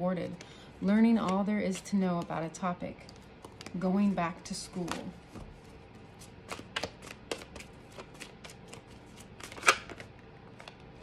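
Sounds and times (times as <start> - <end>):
cards clicking and snapping: 6.5 - 8.8.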